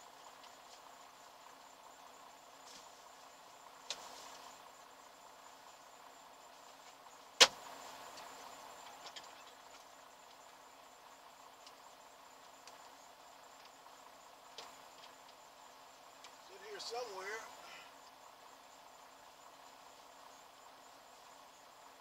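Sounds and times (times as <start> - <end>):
crickets chirping: 0.0 - 22.0
faint low hum: 0.0 - 22.0
sharp loud click: 7.4 - 7.6.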